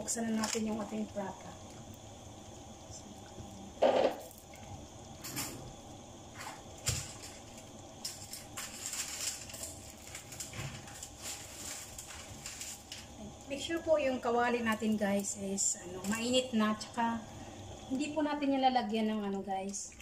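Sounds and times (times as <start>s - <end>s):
faint clicks and rustles: 6.3s - 13.8s.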